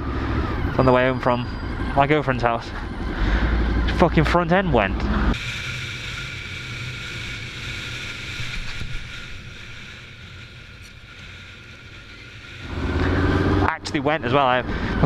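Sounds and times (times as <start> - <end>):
motorcycle engine running: 0.0 - 15.0
wind and road noise: 0.0 - 15.0.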